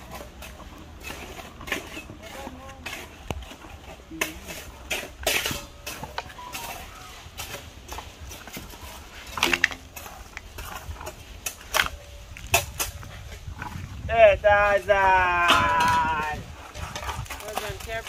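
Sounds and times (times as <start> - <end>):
clinks and knocks: 9.3 - 10.4.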